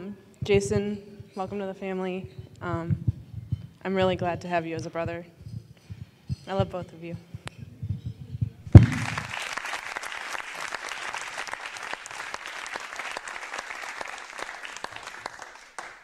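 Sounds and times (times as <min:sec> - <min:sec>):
crowd applauding: 0:08.7 - 0:16.0.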